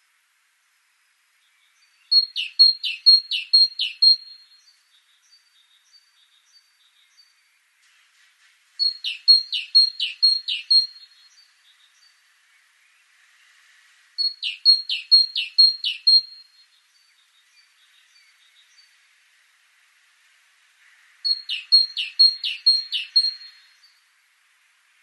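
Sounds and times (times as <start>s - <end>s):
great tit singing: 1.6s - 7.4s, 8.8s - 12.2s, 14.2s - 19.0s, 21.2s - 24.0s.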